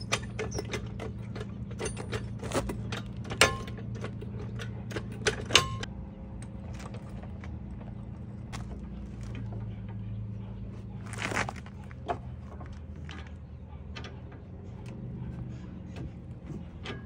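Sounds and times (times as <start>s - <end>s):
ringing metal clanks: 0.0s - 5.9s.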